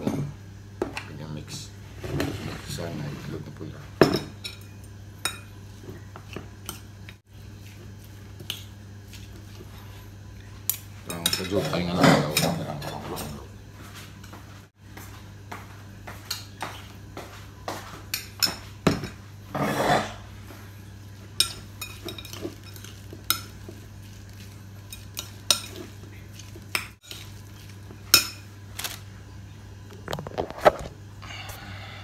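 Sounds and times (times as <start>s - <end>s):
spoon clinking against a bowl: 21.4s - 23.8s.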